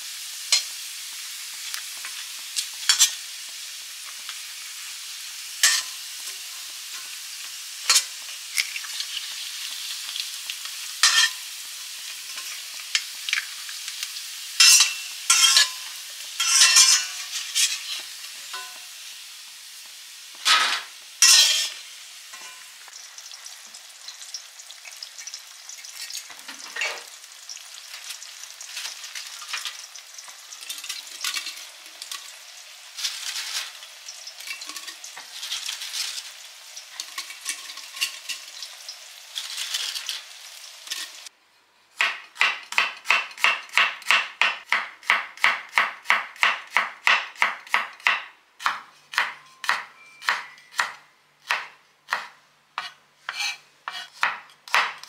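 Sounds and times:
crackers sizzling in oil: 0.0s - 41.4s
metal turner scraping a pan: 5.6s - 7.1s, 7.9s - 9.3s, 11.0s - 11.4s, 14.6s - 18.8s, 20.4s - 22.7s, 33.0s - 41.3s, 52.8s - 54.2s
knife chopping on wooden board: 42.0s - 50.9s, 51.5s - 55.0s.

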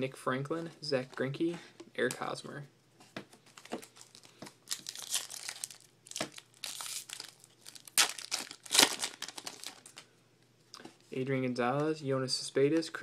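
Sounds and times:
foil wrapper crinkling: 3.5s - 10.0s.

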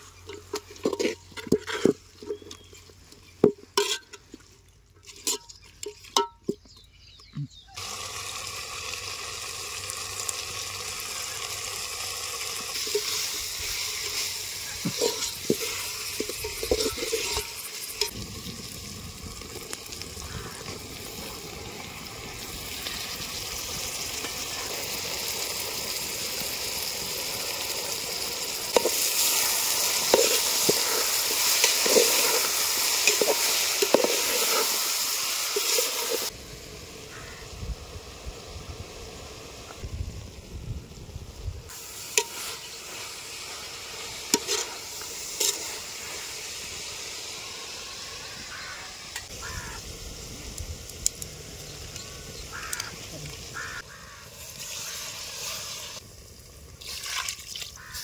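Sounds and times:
utensil scraping against pot: 0.2s - 2.7s, 3.7s - 6.5s, 12.8s - 18.1s, 44.3s - 45.8s
food sizzling in a pot: 7.8s - 58.0s.

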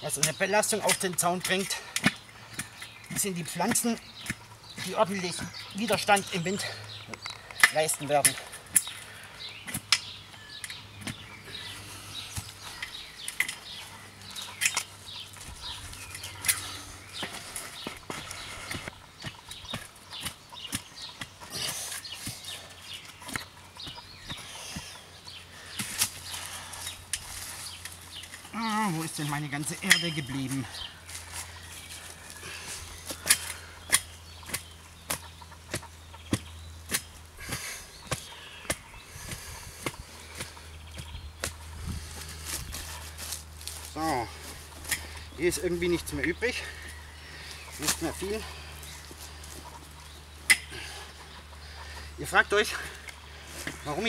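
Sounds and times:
hatchet and spade knocking soil: 0.0s - 9.0s, 16.1s - 25.0s, 33.0s - 42.1s
birds chirping: 0.0s - 54.0s
tool striking soil: 33.1s - 43.0s.

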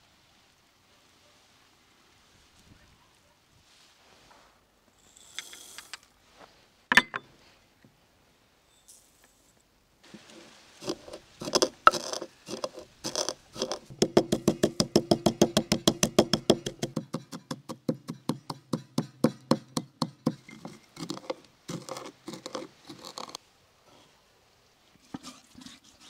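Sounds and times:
wooden pestle pounding spices: 10.8s - 23.2s.

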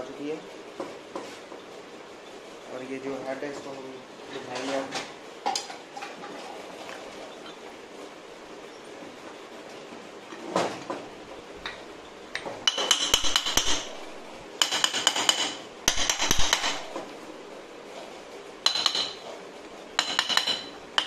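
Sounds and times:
rapid metallic clicking with ringing: 12.3s - 14.0s, 14.6s - 16.9s, 18.6s - 19.2s, 20.0s - 21.0s.

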